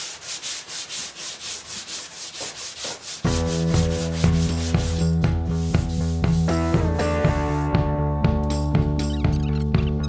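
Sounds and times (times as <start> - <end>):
hand sanding scraping strokes: 0.0 - 7.7
background music: 3.2 - 10.0.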